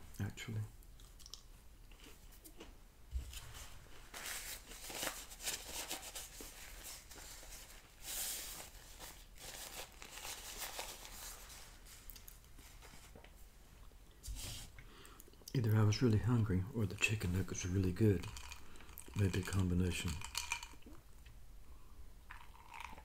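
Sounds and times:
paper napkin rustling: 0:03.2 - 0:13.4.

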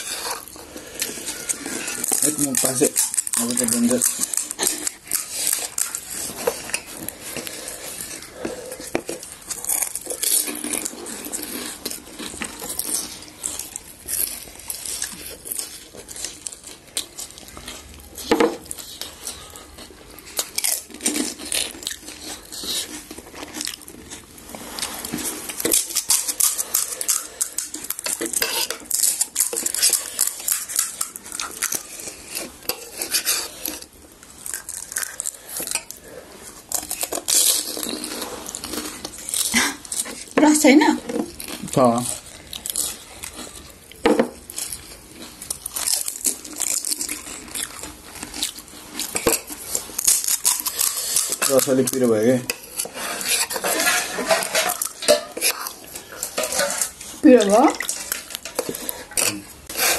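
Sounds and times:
dishes and cutlery clinking: 0:50.8 - 0:59.9.

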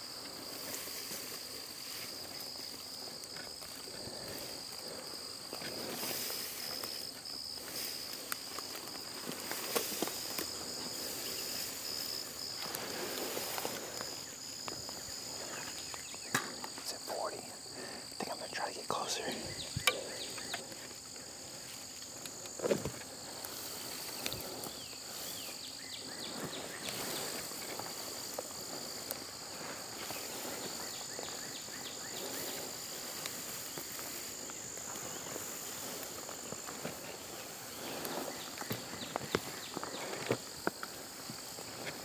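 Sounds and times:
insects buzzing: 0:00.0 - 0:42.0
footsteps swishing through grass: 0:05.7 - 0:15.4, 0:23.2 - 0:38.4.

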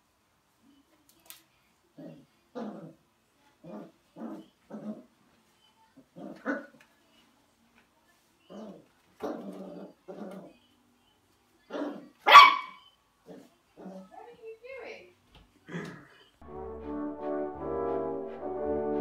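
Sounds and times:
puppy barking: 0:11.7 - 0:12.9.

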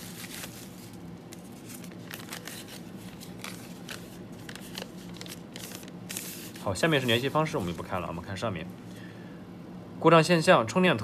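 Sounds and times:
bubble wrap and paper crinkling: 0:00.0 - 0:08.0.

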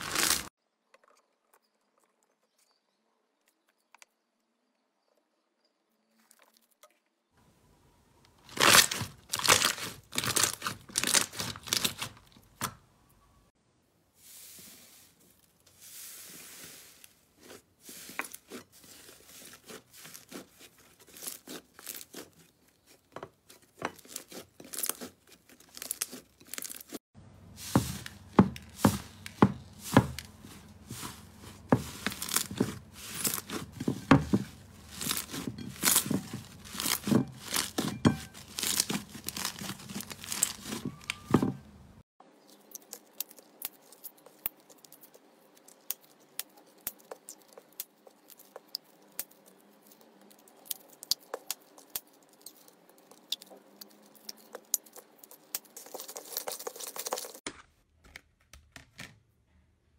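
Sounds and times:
plastic bags crinkling: 0:00.0 - 0:00.5, 0:08.4 - 0:12.5, 0:27.6 - 0:41.5
slime crackling and popping: 0:00.0 - 0:00.5, 0:08.5 - 0:12.2, 0:34.8 - 0:40.8, 0:42.5 - 0:57.5.

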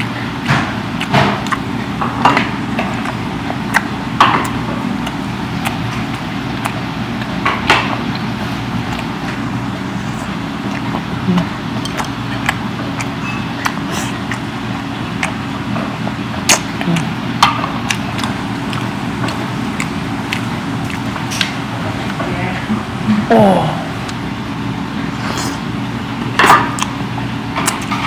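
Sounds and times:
chewing: 0:00.0 - 0:22.7, 0:23.9 - 0:28.0
low machine hum: 0:00.0 - 0:28.0.

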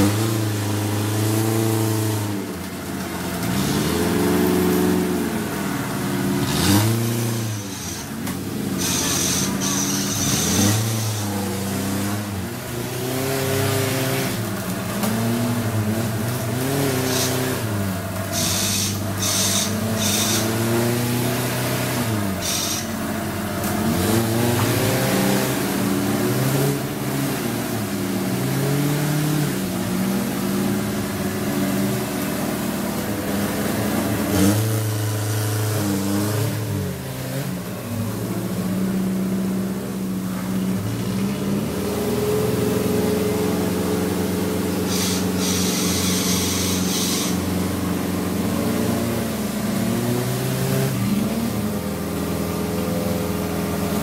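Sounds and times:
off-road engines revving: 0:00.0 - 0:54.0
hiss: 0:08.8 - 0:11.4, 0:18.3 - 0:20.6, 0:22.4 - 0:23.0, 0:44.7 - 0:47.6.

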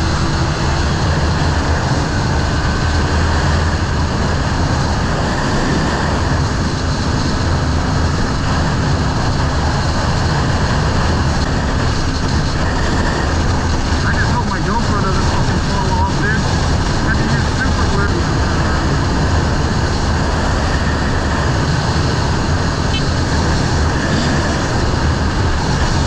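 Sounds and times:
motorcycle engine hum: 0:00.0 - 0:26.0
wind rushing over microphone: 0:00.0 - 0:26.0.

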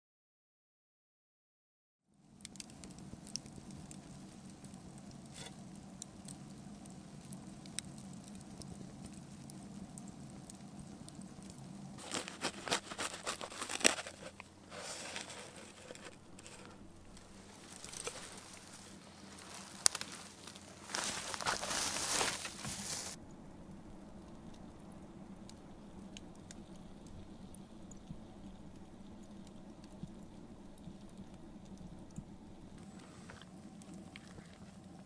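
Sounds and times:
campfire embers crackling: 0:02.1 - 0:35.0
low steady hum: 0:02.2 - 0:35.0
knife cutting crusty bread: 0:12.0 - 0:16.6.

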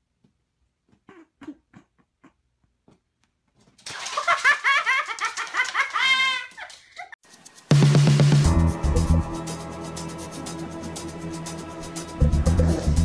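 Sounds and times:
person laughing hard: 0:04.0 - 0:07.2.

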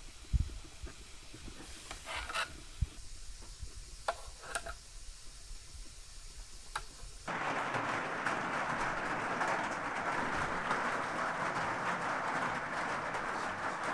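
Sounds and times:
pot simmering: 0:00.0 - 0:08.2
steady hiss: 0:00.0 - 0:13.9.

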